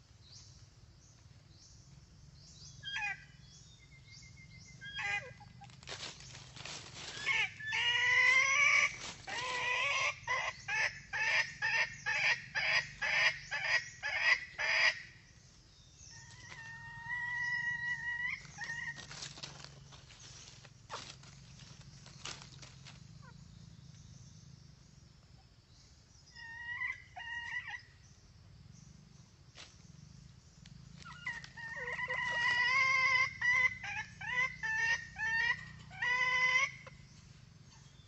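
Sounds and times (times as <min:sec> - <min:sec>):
junglefowl calling: 0:02.8 - 0:03.4, 0:04.7 - 0:15.2, 0:16.0 - 0:23.4, 0:26.3 - 0:27.9, 0:31.0 - 0:38.0
loud clucks: 0:07.2 - 0:15.0, 0:31.1 - 0:37.0.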